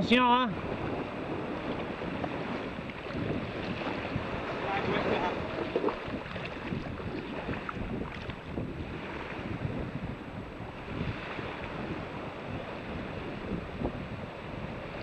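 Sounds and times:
small waves washing: 0:00.0 - 0:15.0
wind buffeting microphone: 0:00.0 - 0:15.0.

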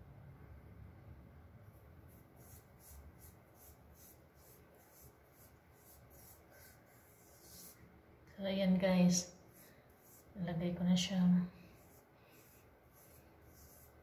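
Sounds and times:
fingertips rubbing paste on skin: 0:02.4 - 0:07.8, 0:11.8 - 0:14.0.

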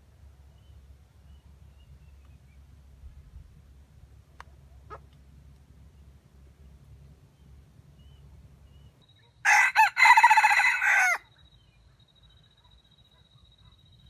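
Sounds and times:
rooster crowing: 0:09.4 - 0:11.3.

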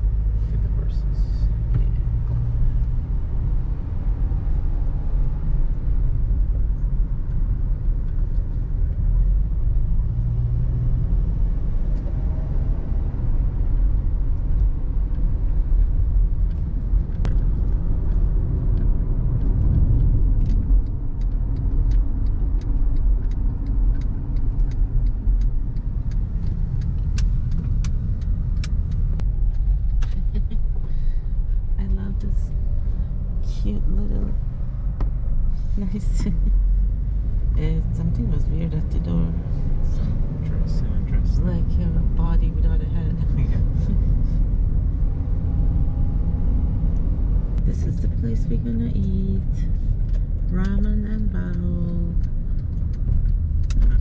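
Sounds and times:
car cabin road rumble: 0:00.0 - 0:54.0
light ticks: 0:14.3 - 0:30.6, 0:49.4 - 0:54.0.

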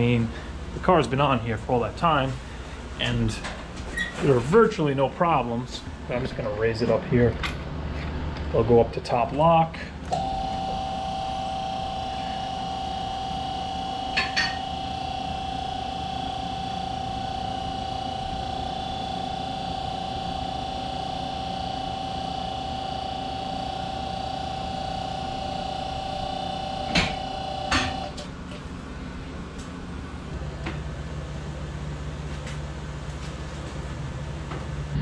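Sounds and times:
hydraulic pump humming: 0:05.8 - 0:28.7.

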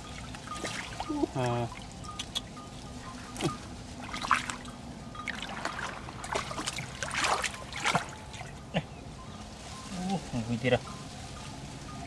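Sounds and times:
muddy water splashing: 0:00.0 - 0:08.6.

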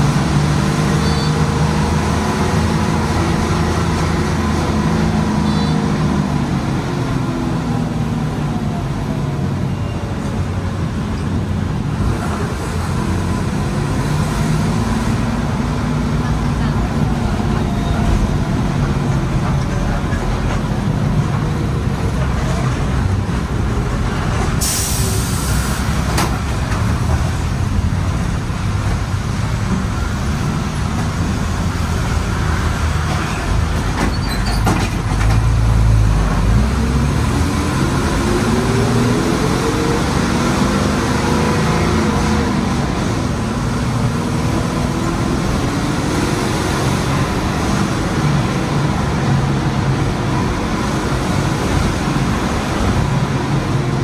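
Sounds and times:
diesel bus engine: 0:00.0 - 0:54.0
road and wind noise: 0:00.0 - 0:54.0
air release hiss: 0:24.6 - 0:25.8.

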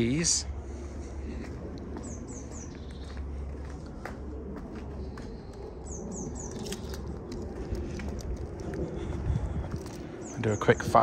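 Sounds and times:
steady low rumble: 0:00.0 - 0:11.0
footsteps: 0:00.7 - 0:10.8
small bird chirping: 0:05.9 - 0:07.1.

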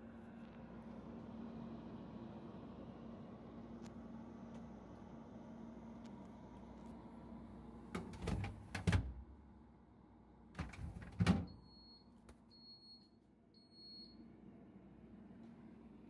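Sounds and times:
plastic shelves clattering: 0:08.0 - 0:09.2, 0:10.6 - 0:11.5.

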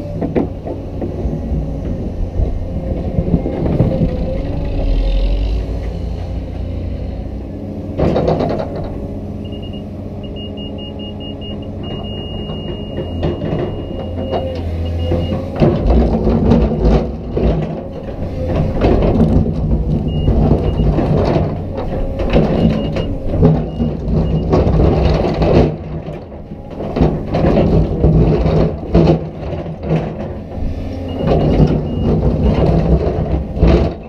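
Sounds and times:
excavator diesel engine running: 0:00.0 - 0:34.0
loud clunk: 0:08.0 - 0:09.0, 0:11.8 - 0:34.0.

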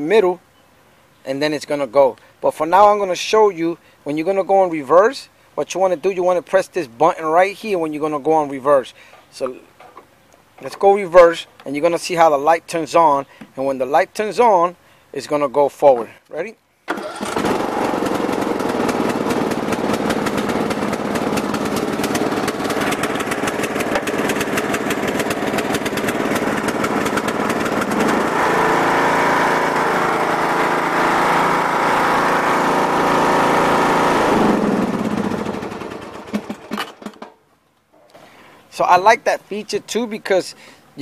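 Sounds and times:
riding lawn mower engine: 0:16.9 - 0:37.2.

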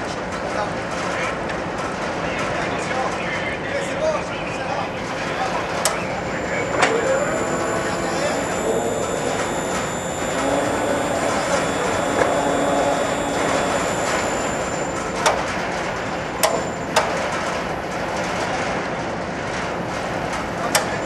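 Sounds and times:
deck machinery noise: 0:05.7 - 0:21.0
faint hum: 0:05.8 - 0:18.4.

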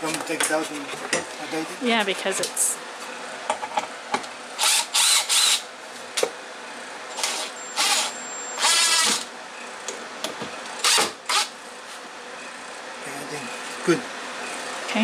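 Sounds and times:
cordless drill driving screws: 0:04.6 - 0:05.6, 0:07.1 - 0:09.3, 0:10.8 - 0:11.5.

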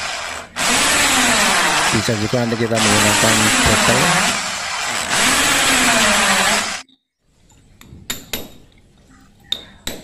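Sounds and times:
electric drill boring into tile: 0:00.0 - 0:06.8.

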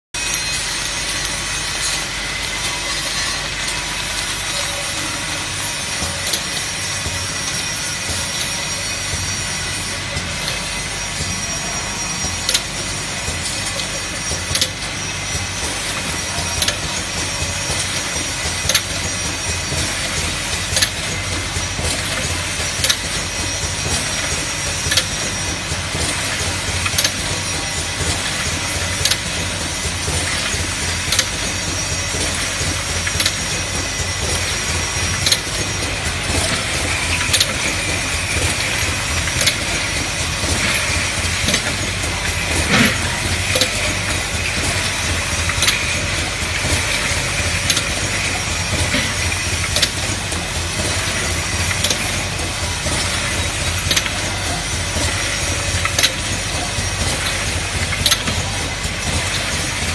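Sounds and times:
machine humming and hissing: 0:00.2 - 0:59.9
sharp machine click: 0:22.0 - 0:52.2.

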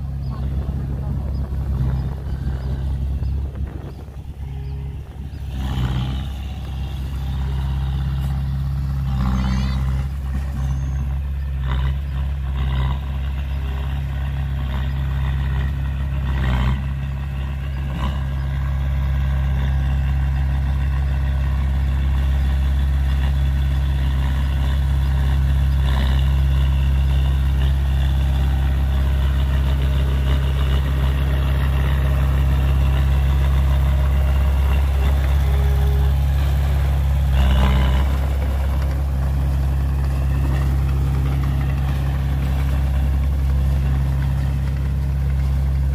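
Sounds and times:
bulldozer diesel engine running: 0:00.0 - 0:45.9.

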